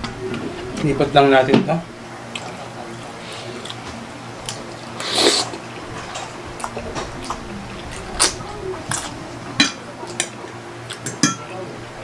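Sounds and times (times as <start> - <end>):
chewing: 2.3 - 11.2
slurping spaghetti: 2.4 - 9.4
forks clicking on plates: 8.9 - 11.6.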